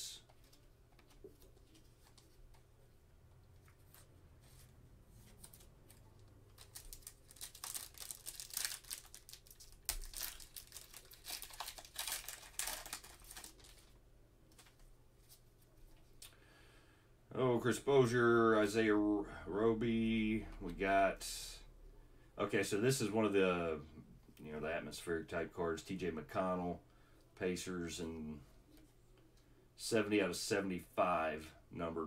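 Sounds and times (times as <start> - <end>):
wrapper crackling and tearing: 6.5 - 14.0.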